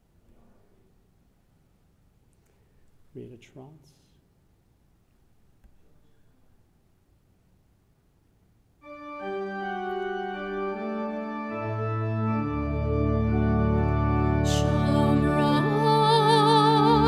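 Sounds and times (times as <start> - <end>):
organ chords: 8.8 - 17.0.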